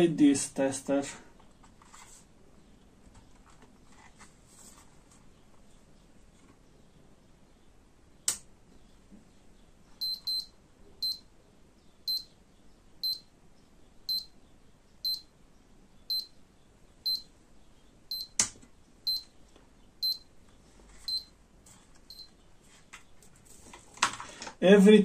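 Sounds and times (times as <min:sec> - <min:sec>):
sharp clicks: 0:08.2 - 0:08.5.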